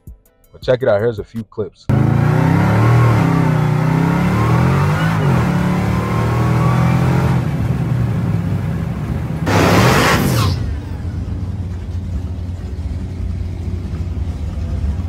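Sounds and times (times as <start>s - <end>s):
engine accelerating hard: 1.9s - 15.0s
loud rushing noise: 9.4s - 11.7s.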